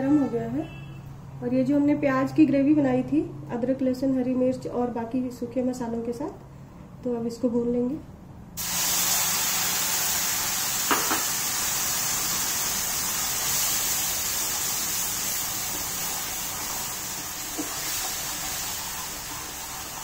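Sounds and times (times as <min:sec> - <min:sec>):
paste sizzling in hot oil: 0:08.6 - 0:20.0.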